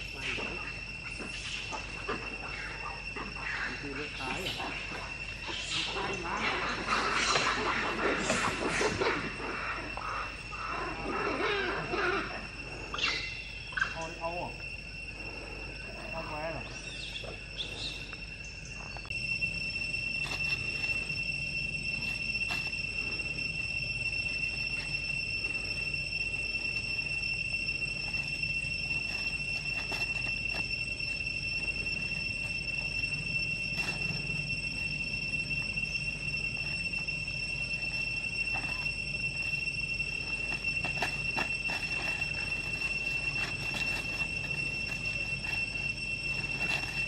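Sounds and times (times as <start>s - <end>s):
high-pitched insect drone: 0.0s - 47.0s
faint clicks and rustles: 28.0s - 30.7s, 40.4s - 47.0s.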